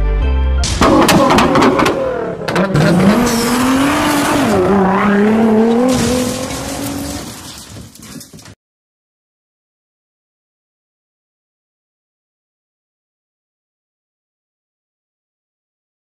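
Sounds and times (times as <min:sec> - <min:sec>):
car engine revving high: 0:00.9 - 0:07.1.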